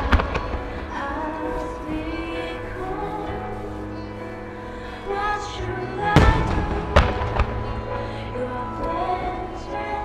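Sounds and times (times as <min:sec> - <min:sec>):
fireworks bursting: 0:00.0 - 0:02.4, 0:06.1 - 0:08.0
recorded music: 0:00.0 - 0:10.0.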